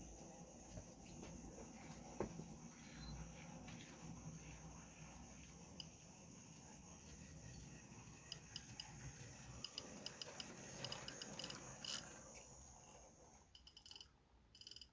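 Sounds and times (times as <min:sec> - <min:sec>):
model train running hum: 0:00.0 - 0:14.0
wheels clicking over rail joints: 0:09.6 - 0:12.2.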